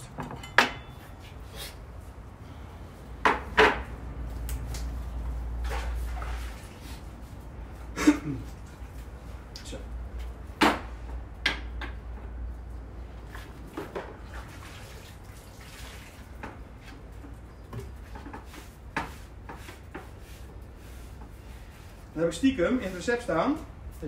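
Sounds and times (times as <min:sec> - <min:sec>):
bowls and utensils knocking: 0:00.2 - 0:01.0.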